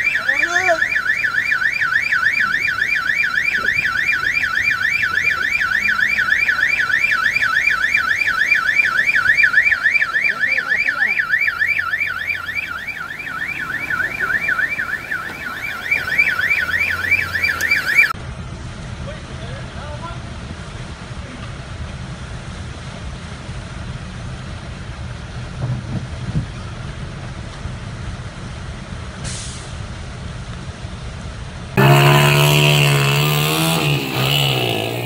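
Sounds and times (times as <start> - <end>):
car alarm warbling: 0.0 - 18.2, 31.8 - 35.0.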